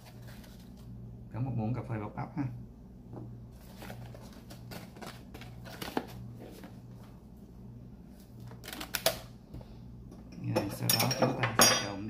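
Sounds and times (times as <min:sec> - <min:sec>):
packaging rustling: 0:00.0 - 0:00.9, 0:03.6 - 0:07.2
steady low hum: 0:00.0 - 0:12.0.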